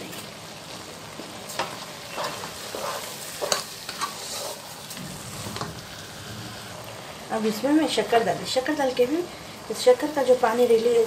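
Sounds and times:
carrots sizzling in a pan: 0.0s - 11.0s
spatula scraping a pan: 1.6s - 6.8s.

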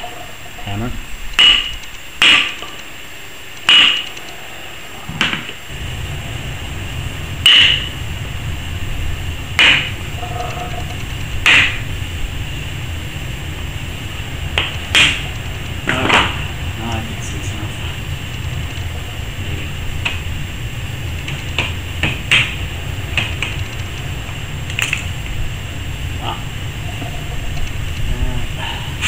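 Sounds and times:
hammer striking wooden block: 1.4s - 2.8s, 3.7s - 4.1s, 7.5s - 7.9s, 9.6s - 9.9s, 11.4s - 11.8s, 14.6s - 15.2s.

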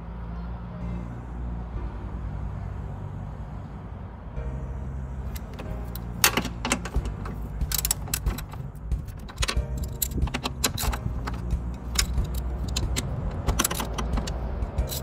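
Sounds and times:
metal tools clinking: 5.3s - 15.0s.

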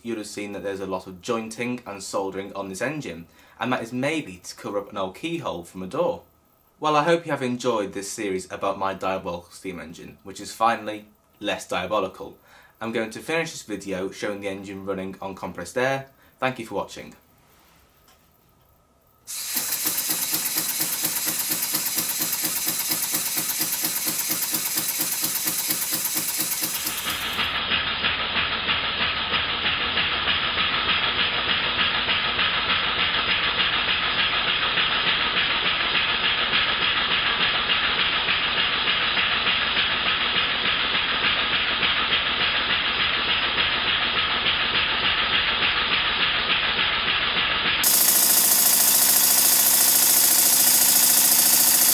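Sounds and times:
steady air hiss: 19.2s - 27.6s
model steam engine chuffing: 19.3s - 51.9s.

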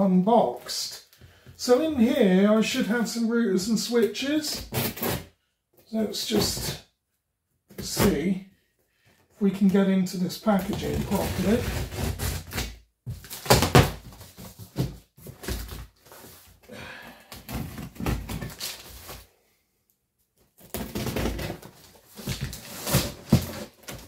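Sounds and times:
cardboard flaps scraping and thumping: 10.6s - 16.6s, 20.6s - 24.0s.

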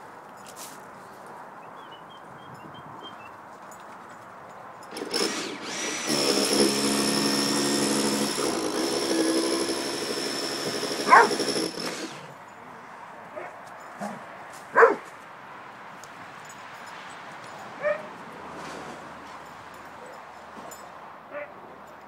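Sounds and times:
dog barking: 11.1s - 11.3s, 13.3s - 15.1s, 17.8s - 18.1s, 21.3s - 21.6s.

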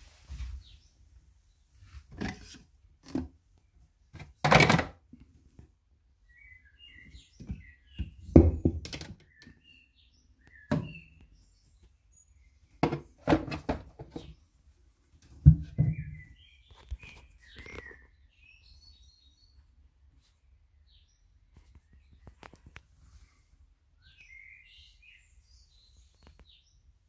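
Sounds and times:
knocks and clatters of tools: 4.2s - 5.0s, 7.4s - 9.5s, 12.8s - 14.3s
faint bird-like chirps: 6.3s - 7.9s, 15.9s - 19.7s, 24.0s - 26.8s.

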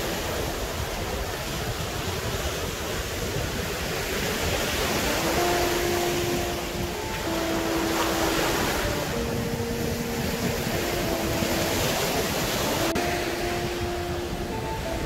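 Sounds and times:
ocean surf breaking: 0.0s - 15.0s
soft background music: 4.7s - 15.0s.

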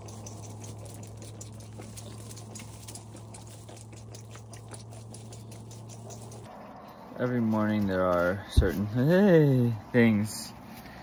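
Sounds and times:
goat kid suckling from a bottle: 0.0s - 6.5s.

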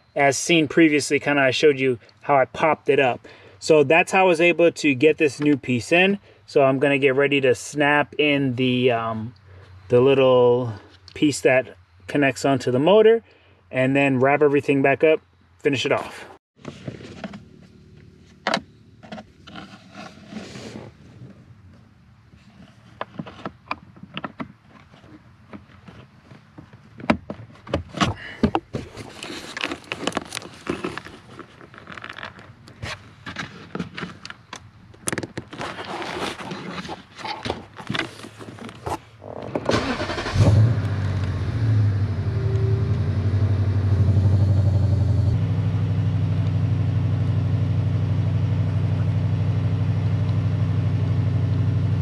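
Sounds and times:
car engine starting and idling: 39.2s - 52.0s.

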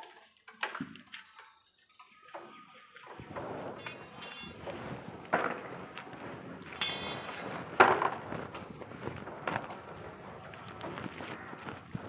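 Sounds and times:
metallic clinks and knocks: 3.2s - 4.7s, 6.4s - 8.3s.

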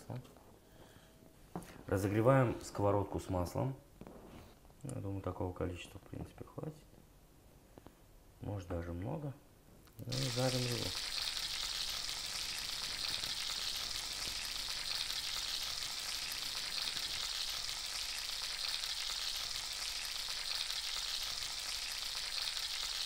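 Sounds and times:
fish sizzling in a hot pan: 10.1s - 23.0s.

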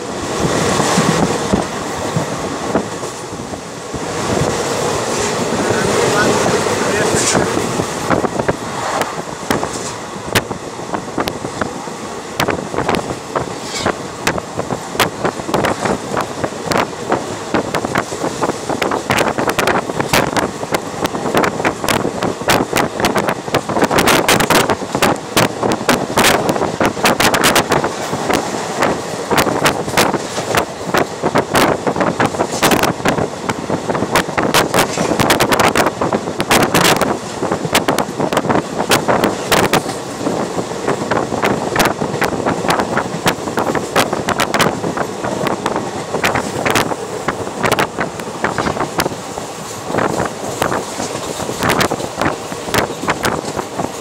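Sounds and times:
train rumble and air rush: 0.0s - 54.0s
wind buffeting microphone: 0.0s - 54.0s
wheels clacking over rail joints: 34.1s - 54.0s.

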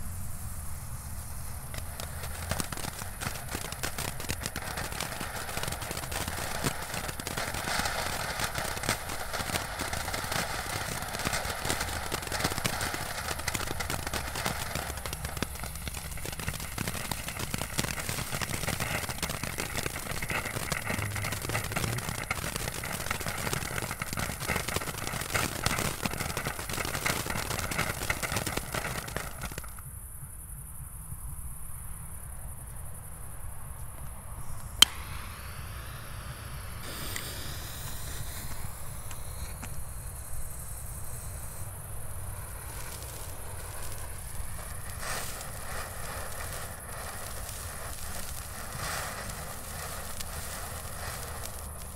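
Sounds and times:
firework crackling: 0.0s - 30.4s, 33.3s - 51.9s
sharp pop: 34.7s - 35.5s, 36.8s - 39.8s.

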